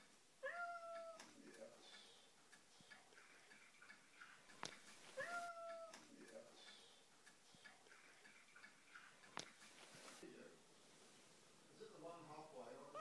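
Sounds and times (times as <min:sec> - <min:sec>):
cat meowing: 0:00.4 - 0:01.2, 0:05.1 - 0:06.0.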